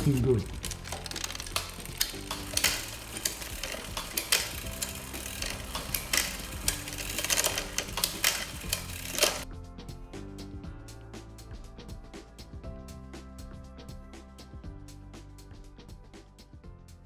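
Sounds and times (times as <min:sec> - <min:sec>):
bicycle chain clicking: 0:00.0 - 0:09.4
background music: 0:00.0 - 0:17.0.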